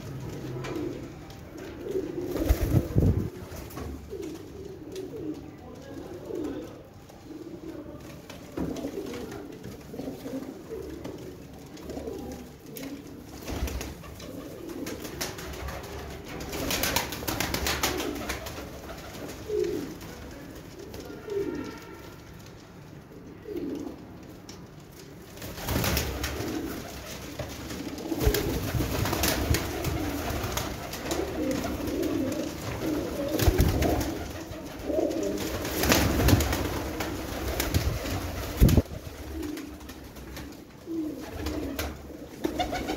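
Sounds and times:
pigeons cooing: 0:00.0 - 0:13.2, 0:23.2 - 0:24.1, 0:25.9 - 0:39.8, 0:40.4 - 0:42.9
wings rustling: 0:01.9 - 0:04.4, 0:25.4 - 0:42.9.

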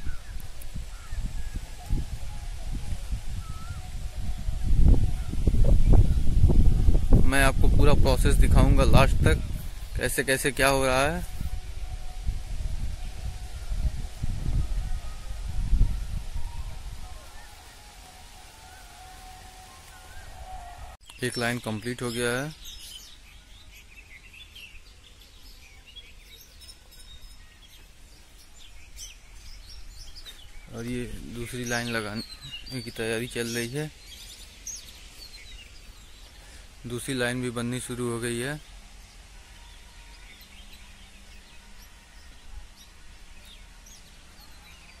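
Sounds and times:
bird chirps: 0:03.4 - 0:04.0
small birds chirping: 0:16.4 - 0:45.0.

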